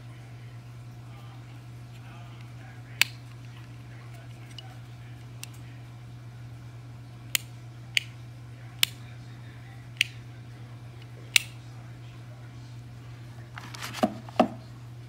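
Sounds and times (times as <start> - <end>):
steady low hum: 0.0 - 15.0
rocker switch clicking: 7.3 - 8.2, 10.0 - 10.2, 11.0 - 11.6
plastic panel rustling: 13.5 - 14.6
plastic panel knocks: 13.9 - 14.6.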